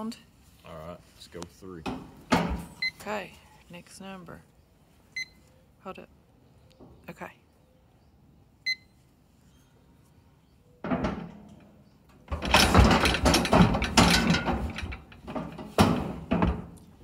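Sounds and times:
electronic timer beep: 5.2s - 5.4s, 8.6s - 8.9s
steel chute clattering and banging: 10.8s - 17.0s.

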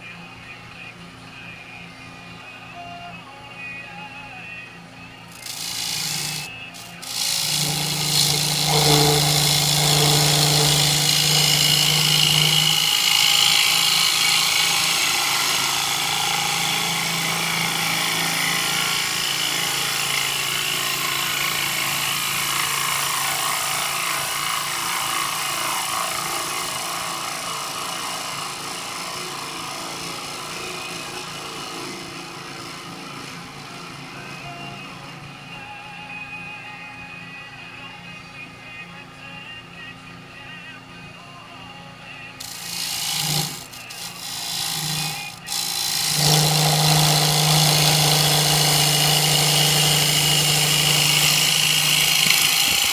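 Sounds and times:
lathe tool scraping wood: 5.3s - 34.0s, 42.4s - 52.9s.

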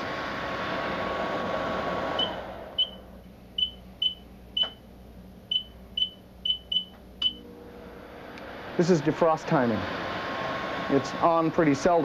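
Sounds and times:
low hum: 0.0s - 12.0s
microwave keypad beeps: 2.2s - 3.0s, 3.6s - 4.8s, 5.5s - 7.4s.

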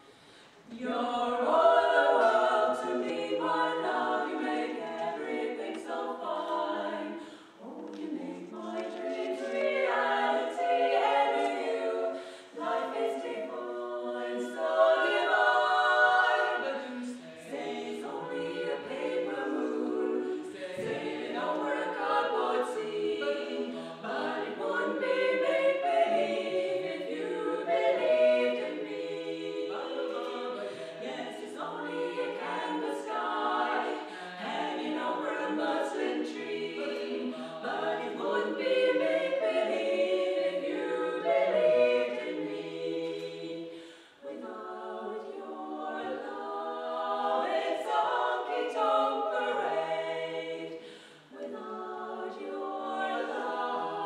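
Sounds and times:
singers breathing: 0.0s - 0.7s, 7.1s - 7.6s, 12.2s - 12.6s, 30.7s - 31.0s, 43.7s - 44.2s, 50.7s - 51.4s
female vocal quartet singing: 0.0s - 54.0s.

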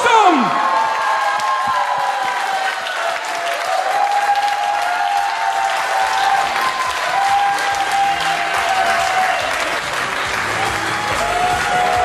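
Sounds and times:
audience applauding: 0.0s - 12.0s
music playing: 6.7s - 12.0s.

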